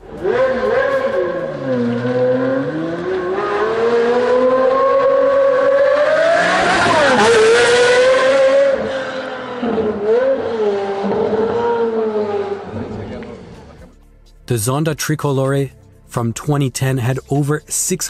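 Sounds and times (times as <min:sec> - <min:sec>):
car engine accelerating past: 0:00.0 - 0:13.9.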